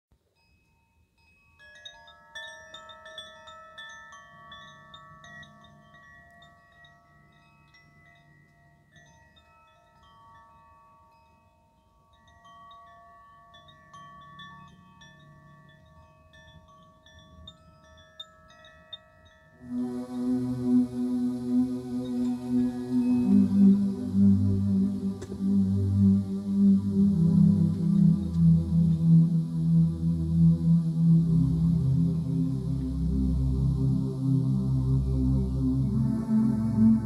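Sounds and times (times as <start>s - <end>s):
wind chime ringing: 0.2s - 20.1s, 21.8s - 25.1s.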